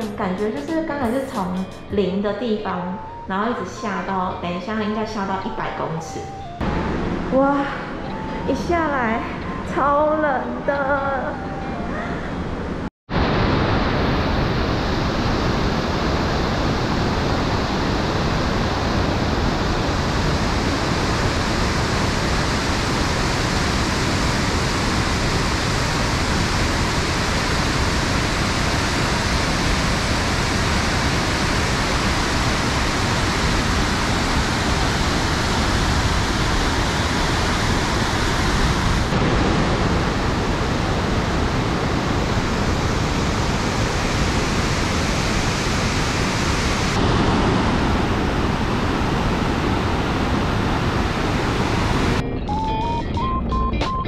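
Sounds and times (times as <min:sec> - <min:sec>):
waterfall rushing: 0:13.1 - 0:52.2.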